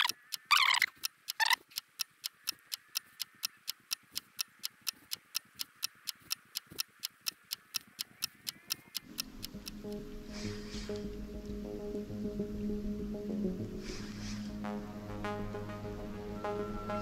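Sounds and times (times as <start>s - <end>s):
fishing reel rotor clicking: 0.0s - 9.8s.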